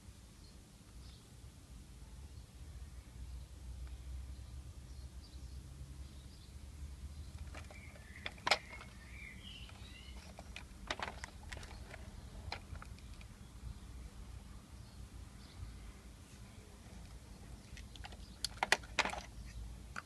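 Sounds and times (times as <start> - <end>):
bird chirping: 0.4 - 1.3, 2.2 - 14.1, 14.8 - 19.8
plastic toy clicks and knocks: 7.4 - 9.0, 9.6 - 13.3, 17.7 - 19.4.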